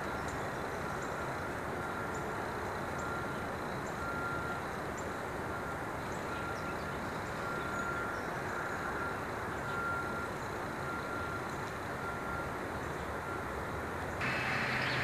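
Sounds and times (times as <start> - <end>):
street rumble and hiss: 0.0 - 15.0
faint steady tone: 0.1 - 13.6, 14.2 - 15.0
faint high chirps: 14.2 - 15.0.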